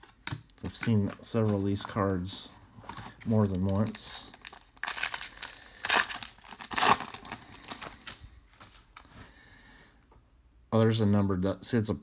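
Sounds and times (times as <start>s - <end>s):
foil wrapper tearing and crinkling: 3.2s - 8.2s.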